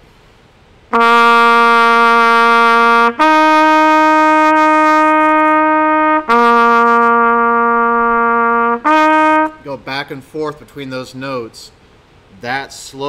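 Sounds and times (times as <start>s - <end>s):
trumpet alternating two notes: 0.9s - 9.8s.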